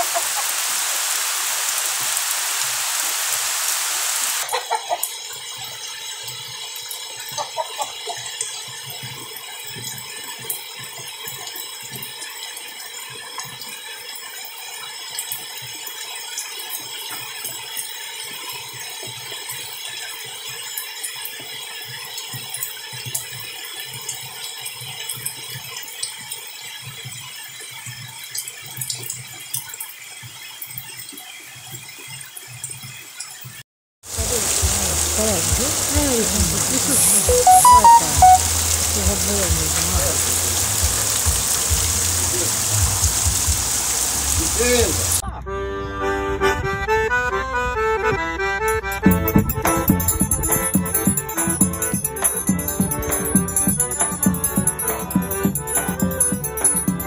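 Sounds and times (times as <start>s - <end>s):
rain hiss: 0.0s - 5.4s, 34.1s - 45.2s
dripping taps and clicks: 4.9s - 33.6s, 35.4s - 43.8s, 49.2s - 57.0s
faint high-pitched tones: 37.3s - 38.7s.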